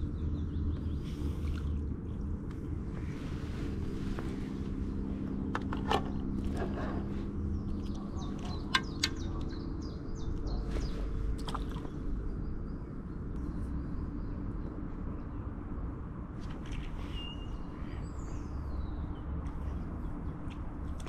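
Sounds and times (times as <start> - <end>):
birds chirping: 0.0 - 15.6
low outdoor rumble: 0.0 - 21.0.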